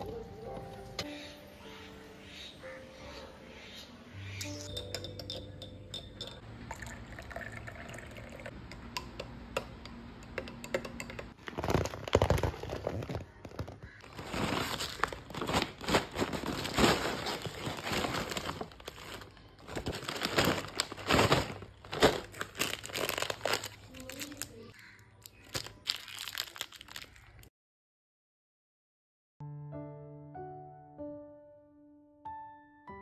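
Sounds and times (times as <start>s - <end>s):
spoon clinking in glass: 4.4s - 8.0s
liquid sounds: 6.0s - 9.3s
paper and plastic bags crinkling: 11.4s - 27.5s.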